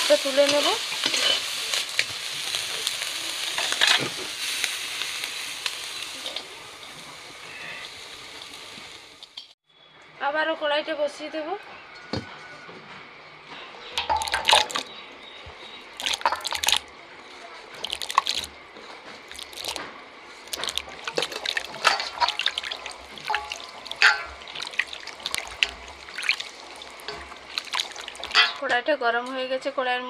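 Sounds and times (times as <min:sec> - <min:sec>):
water splashing in a bowl: 0:14.0 - 0:14.9, 0:15.9 - 0:16.9, 0:17.7 - 0:18.6, 0:19.2 - 0:19.8, 0:20.4 - 0:28.6
clinks against steel bowl: 0:28.3 - 0:28.7.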